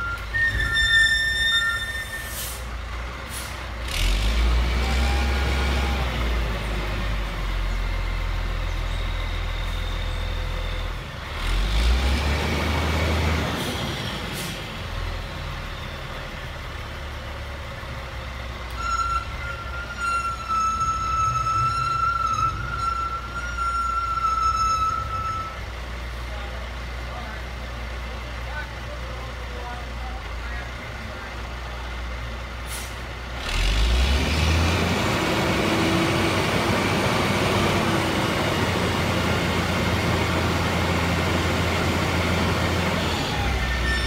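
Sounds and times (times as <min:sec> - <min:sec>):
high-pitched squeal: 0:00.0 - 0:02.7, 0:18.7 - 0:25.6, 0:42.9 - 0:44.0
truck diesel engine revving: 0:02.4 - 0:09.5, 0:10.1 - 0:18.8, 0:31.5 - 0:44.0.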